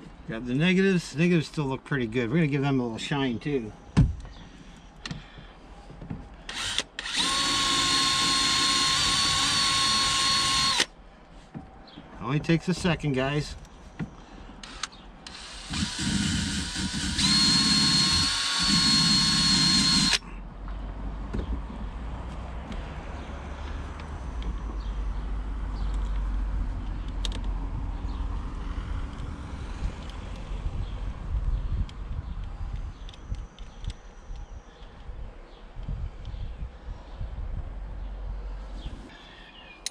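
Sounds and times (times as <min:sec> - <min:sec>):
cordless drill whining: 0:06.5 - 0:10.9, 0:14.6 - 0:20.2
wind buffeting microphone: 0:26.5 - 0:39.1.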